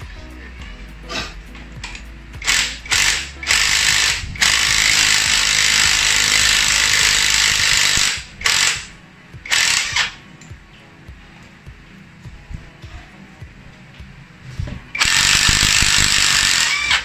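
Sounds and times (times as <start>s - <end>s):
impact driver hammering: 2.4s - 8.9s, 15.0s - 17.0s.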